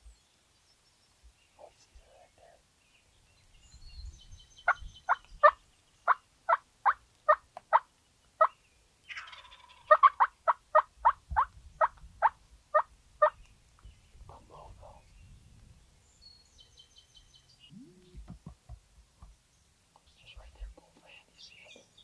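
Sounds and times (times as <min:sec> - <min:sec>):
turkey raspy call: 0:09.1 - 0:13.4
wild turkey yelping: 0:09.1 - 0:13.4.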